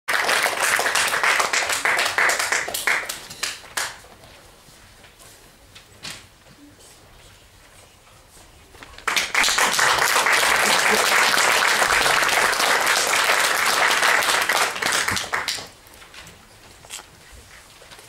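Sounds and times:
audience applause: 0.1 - 4.0, 9.0 - 15.7.

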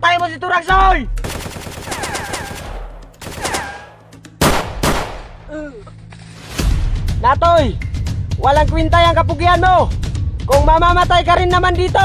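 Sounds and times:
automatic gunfire burst: 1.2 - 5.4
heavy single gunshots: 1.9 - 5.5.

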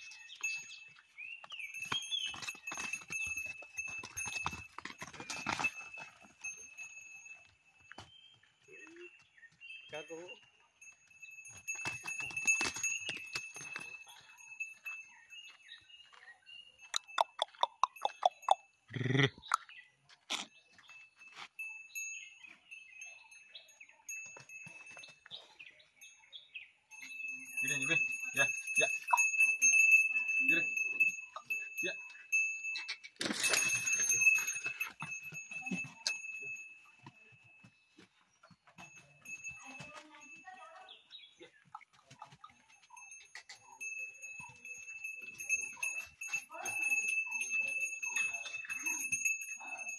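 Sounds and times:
bell clanks: 0.0 - 8.0, 10.0 - 15.8, 16.9 - 18.6, 24.1 - 25.4, 26.9 - 37.7, 38.7 - 41.0, 42.1 - 49.9
hooves scuffling on gravel: 0.0 - 18.5, 33.2 - 49.9.

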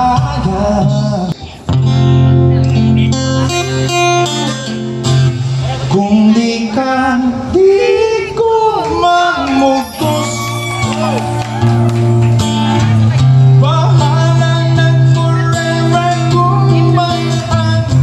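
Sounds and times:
man singing: 0.0 - 1.7, 5.8 - 11.2, 12.4 - 18.0
acoustic guitar strumming: 0.0 - 7.3, 9.5 - 18.0.

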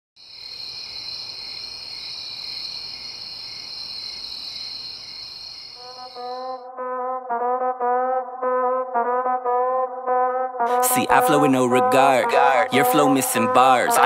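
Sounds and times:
crickets chirping: 0.2 - 6.6
held brass notes: 6.4 - 14.0.

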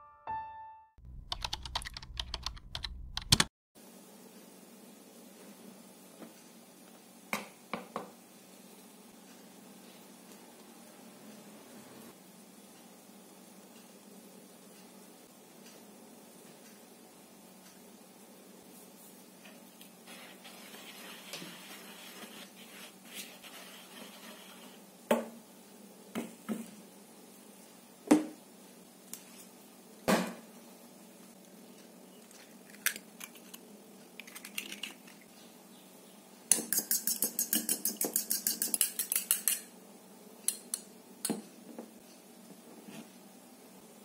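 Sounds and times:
whisk stirring flour in plastic bowl: 20.0 - 24.8, 36.6 - 39.6
fork beating egg in ceramic bowl: 36.5 - 39.7.

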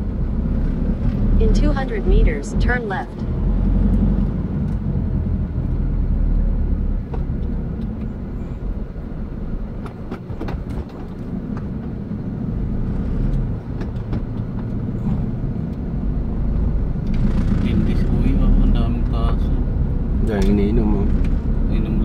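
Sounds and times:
car engine and road noise: 0.0 - 22.0.

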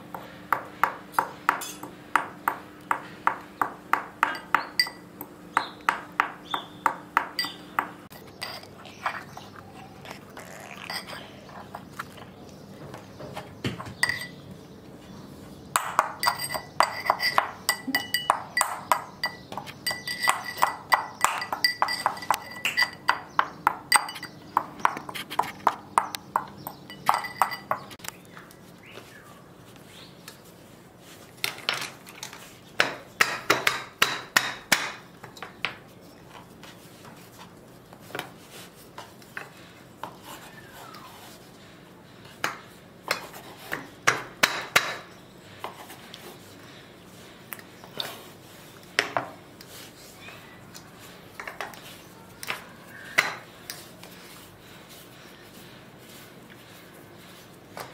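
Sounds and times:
stick clinking in metal cup: 4.3 - 5.0, 16.2 - 23.2
dough kneaded and cut on wooden board: 35.7 - 46.6.

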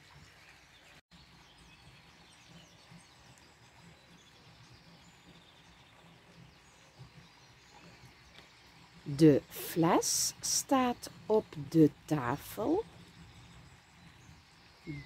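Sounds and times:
faint bird chirps: 12.3 - 15.0.

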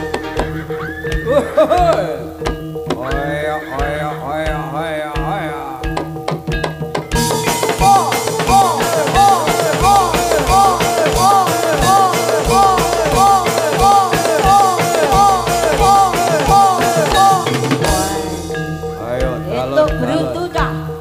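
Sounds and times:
fast loud drumming: 1.2 - 20.1
repeating melodic figure: 7.2 - 19.7.

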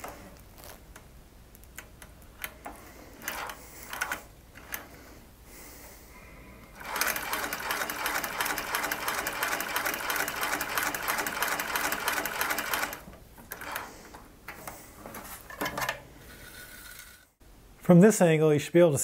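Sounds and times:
sewing machine stitching leather: 3.2 - 4.9, 6.8 - 14.2.

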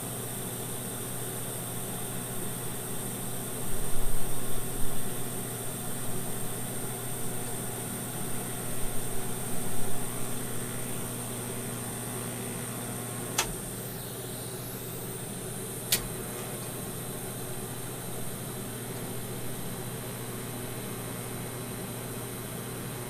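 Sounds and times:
welder hum: 7.9 - 23.0.

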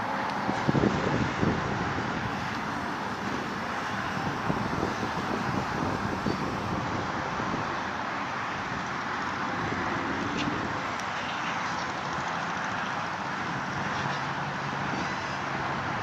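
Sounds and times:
wind buffeting microphone: 0.0 - 8.0
road traffic noise: 0.0 - 16.0.

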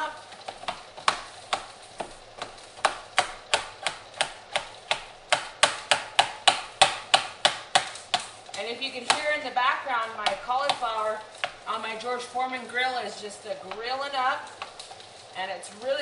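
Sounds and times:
knife chopping on cutting board: 0.5 - 8.3, 11.4 - 11.6.

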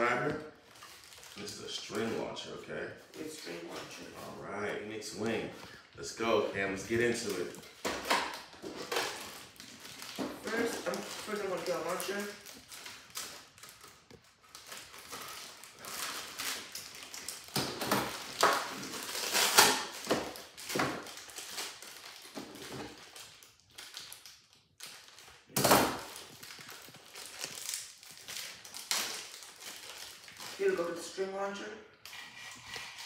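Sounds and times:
plastic bag crinkling: 0.2 - 2.3, 6.8 - 31.4.

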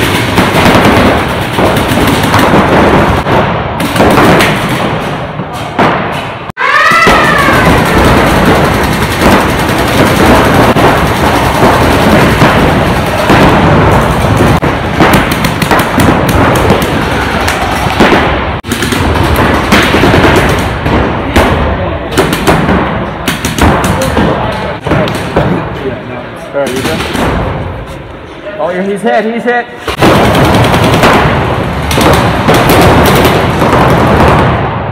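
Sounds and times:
paintball markers firing rapidly: 7.8 - 21.5.

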